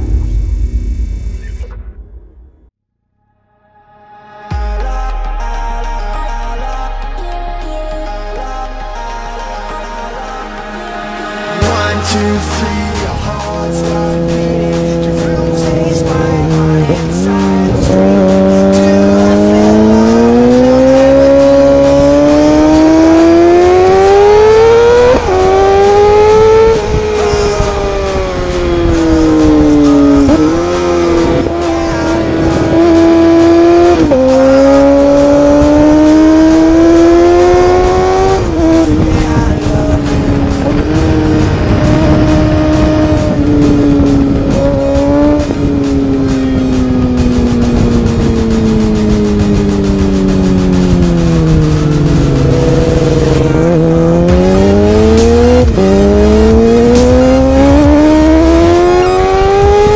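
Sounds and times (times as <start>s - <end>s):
motorcycle engine accelerating: 11.2s - 59.9s
wind rushing over microphone: 23.7s - 34.2s, 34.9s - 54.9s.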